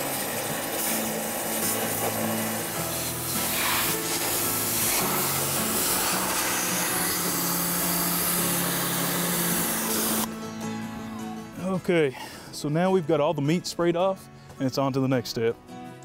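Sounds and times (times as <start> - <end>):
pressure washer spraying: 0.0 - 10.3.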